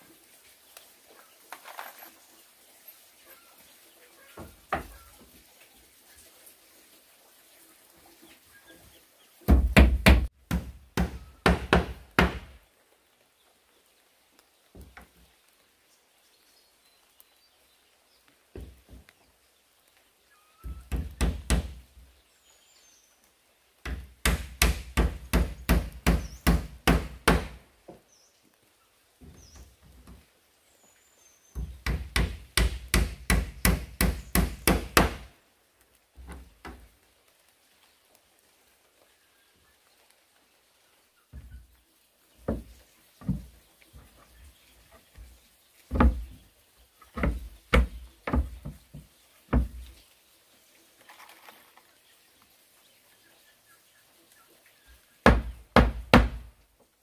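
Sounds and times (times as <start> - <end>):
hammer striking wood: 9.5 - 12.6, 20.9 - 21.8, 23.9 - 27.6, 31.6 - 35.3, 55.2 - 56.5.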